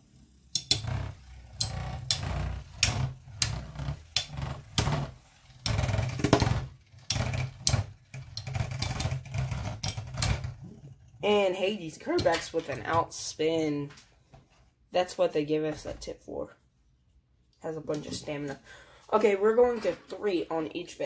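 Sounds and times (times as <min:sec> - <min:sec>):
spinning tops whirring: 0:00.0 - 0:10.5.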